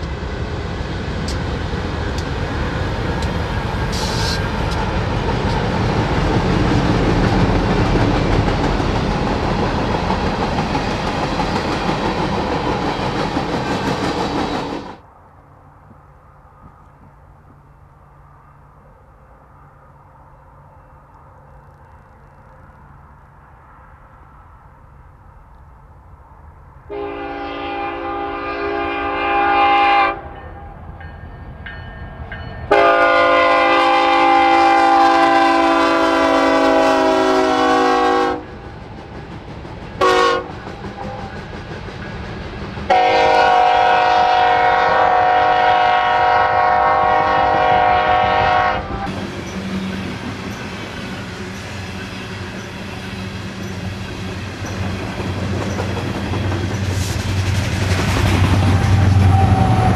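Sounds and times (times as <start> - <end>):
train wheels clattering over rails: 1.1 - 15.0, 38.5 - 43.6, 49.0 - 59.9
locomotive air horn: 26.9 - 30.4, 32.7 - 38.5, 40.0 - 41.3, 42.9 - 49.1, 59.0 - 59.9.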